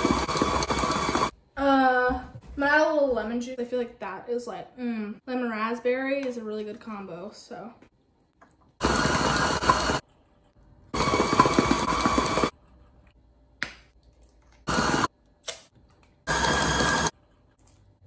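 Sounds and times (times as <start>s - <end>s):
stand mixer whipping: 0.0s - 1.3s, 8.8s - 10.0s, 11.0s - 12.5s, 14.7s - 15.1s, 16.3s - 17.1s.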